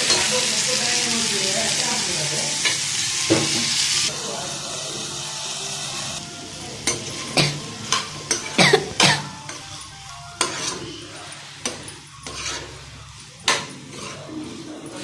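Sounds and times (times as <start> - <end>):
faint sizzle: 0.0 - 15.0
spoon scraping metal pan: 10.4 - 15.0.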